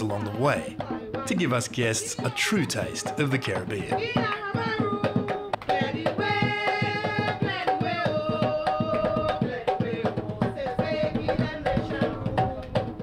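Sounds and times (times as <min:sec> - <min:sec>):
fast hand drumming: 0:00.0 - 0:13.0
woman singing: 0:00.6 - 0:03.0, 0:03.8 - 0:13.0.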